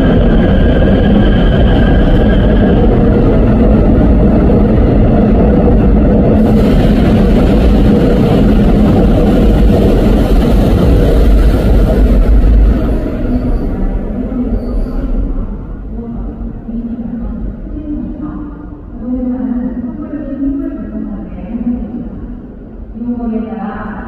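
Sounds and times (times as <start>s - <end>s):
electric train rumbling past: 0.0s - 19.1s
train hiss: 6.4s - 13.6s.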